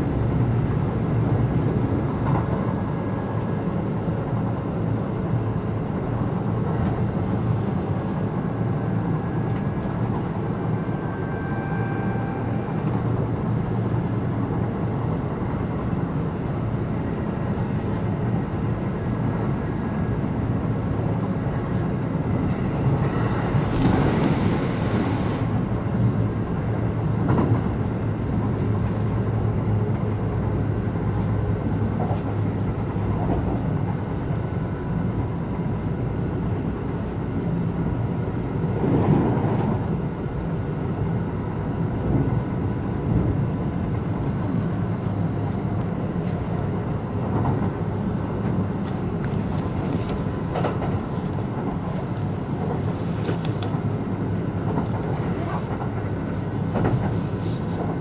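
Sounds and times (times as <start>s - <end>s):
train wheels rumbling on rail: 0.0s - 58.0s
loud rush of air: 20.9s - 26.4s, 47.8s - 58.0s.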